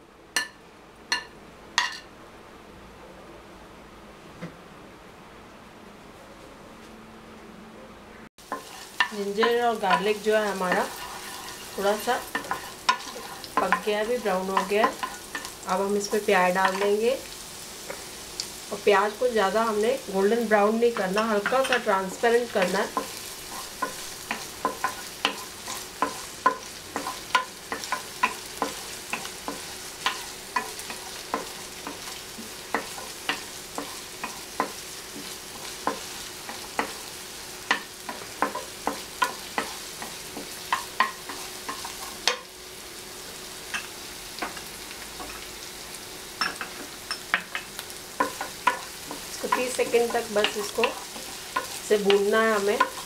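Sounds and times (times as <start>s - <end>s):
wooden spatula scraping pan: 8.4s - 18.1s, 19.0s - 42.4s
onion sizzling in oil: 8.4s - 53.0s.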